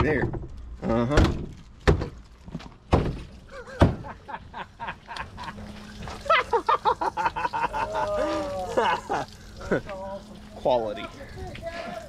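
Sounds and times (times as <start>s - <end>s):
loud thunks: 1.1s - 4.2s.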